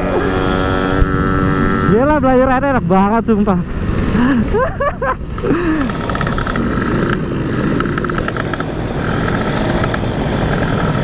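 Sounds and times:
motorcycle engine revving: 0.0 - 2.9, 5.4 - 11.0
two-stroke motorcycles buzzing: 0.0 - 11.0.

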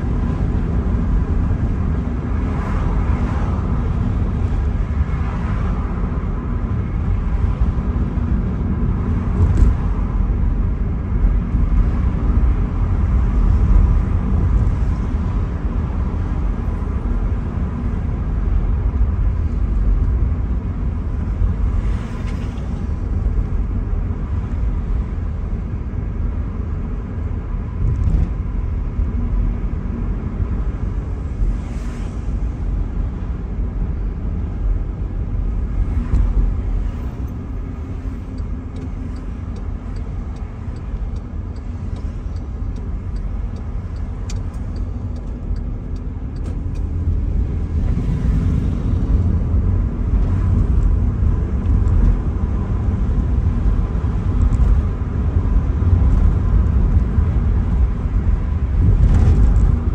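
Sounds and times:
car engine rumble: 0.0 - 59.9
tyres on the road: 0.0 - 59.9
faint ticks: 38.3 - 46.9.

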